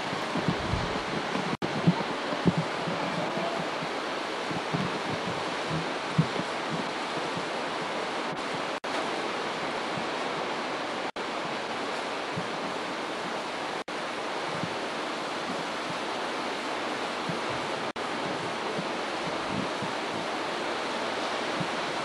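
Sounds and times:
steady rushing noise: 0.0s - 22.0s.

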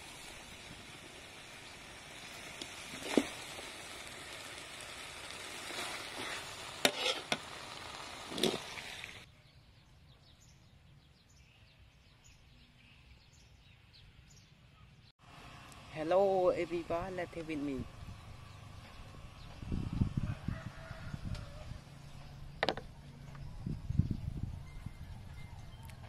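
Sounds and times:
food sizzling in a wok: 0.0s - 9.3s.

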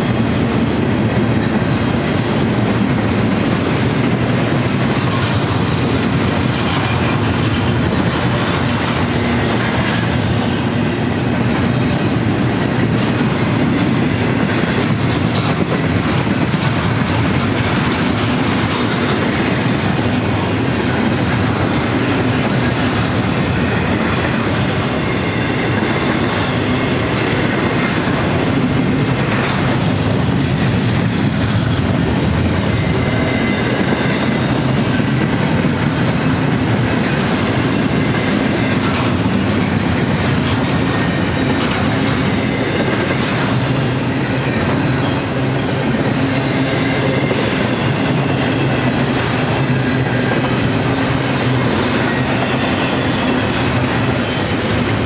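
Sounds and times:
train wheels rolling on rails: 0.0s - 55.0s.

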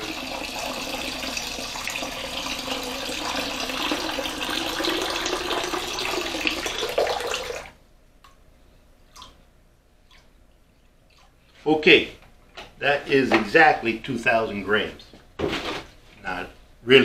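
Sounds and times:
water pouring from jug: 0.0s - 7.7s.

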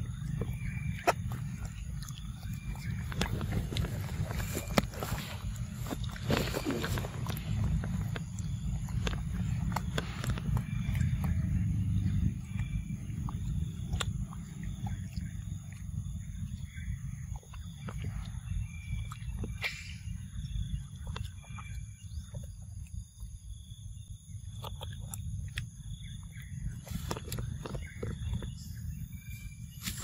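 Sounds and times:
low wind rumble on microphone: 0.0s - 30.0s
monkeys eating with soft clicks: 0.0s - 30.0s.

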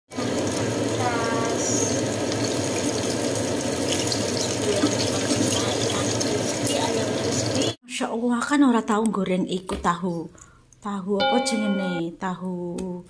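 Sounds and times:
chicken sizzling in hot oil: 0.1s - 7.8s.

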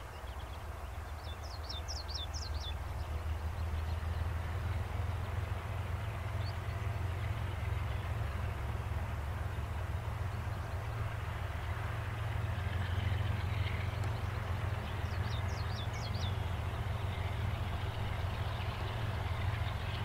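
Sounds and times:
bird chirping: 0.0s - 4.2s, 13.6s - 17.3s
distant diesel locomotives droning: 0.0s - 20.0s.

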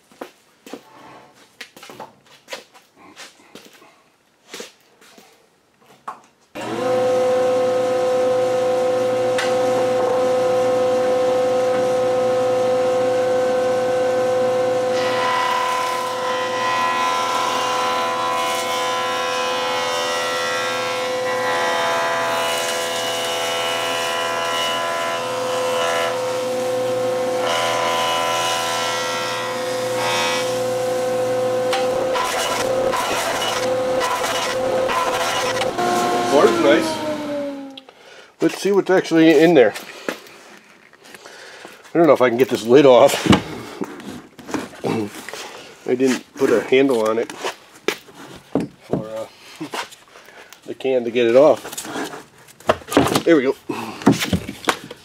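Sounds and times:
jointer and dust collector humming: 6.6s - 37.8s
jointer planing a board: 6.6s - 37.8s.

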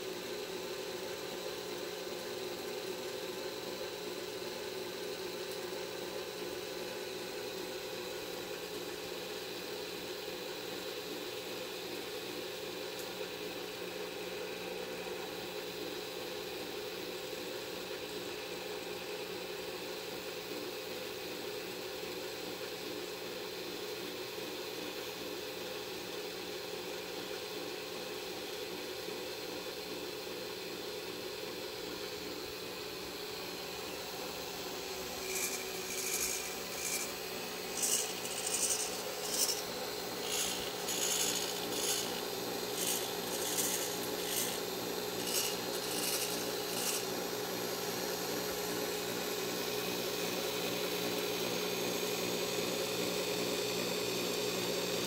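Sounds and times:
power drill humming: 33.8s - 47.3s.

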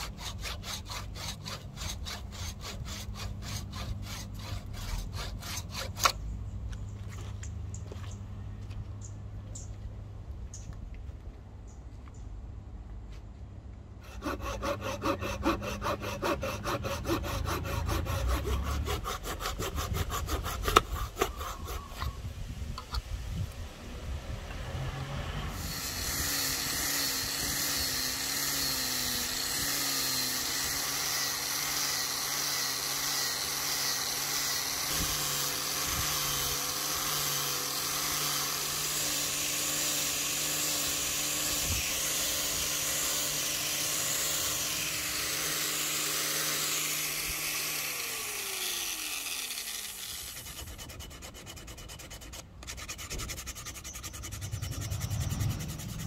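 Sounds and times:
power sander sanding wood: 0.0s - 6.2s, 14.0s - 22.2s, 25.3s - 56.0s
sander motor winding down: 24.4s - 50.4s.

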